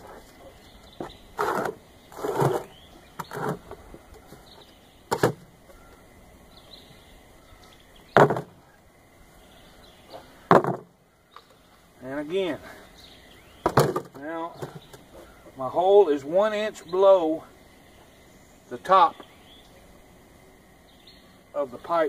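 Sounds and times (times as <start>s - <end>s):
plastic pipe knocking on bricks: 8.2s - 8.6s, 10.5s - 10.9s.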